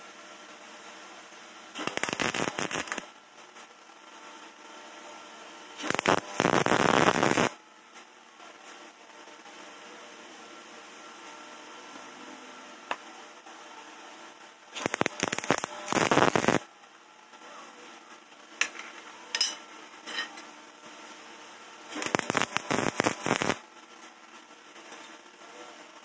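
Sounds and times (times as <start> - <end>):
welder crackling: 1.8 - 3.1, 5.8 - 7.6, 14.8 - 16.7, 21.9 - 23.6.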